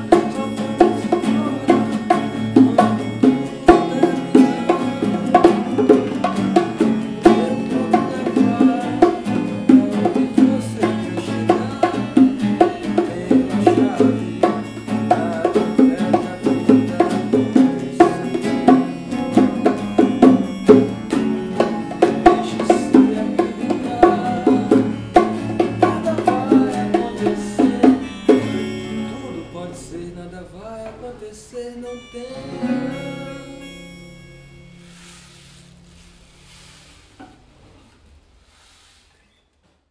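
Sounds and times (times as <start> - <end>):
bongos struck by hand: 0.0 - 28.7
keyboard: 0.0 - 36.5
acoustic guitar picking: 0.0 - 37.9.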